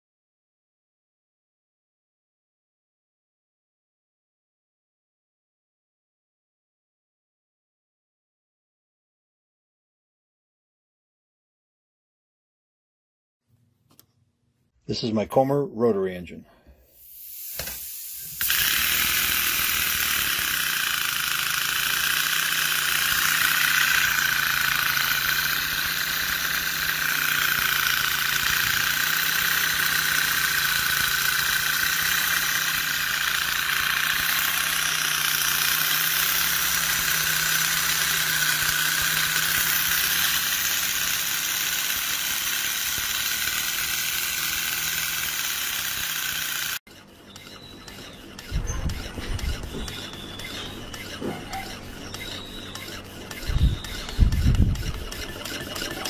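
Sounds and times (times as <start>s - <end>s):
steam engine hissing: 16.8s - 46.8s.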